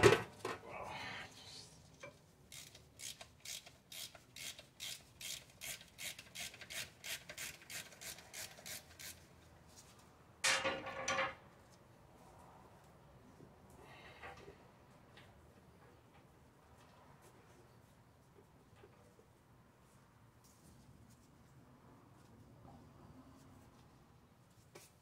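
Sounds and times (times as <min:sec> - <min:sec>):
ratchet wrench rasping: 0:02.5 - 0:09.2.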